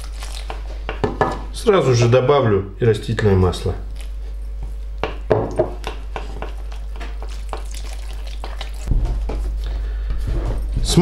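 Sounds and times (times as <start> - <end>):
fork stirring dough: 0.0 - 1.1, 3.8 - 9.5.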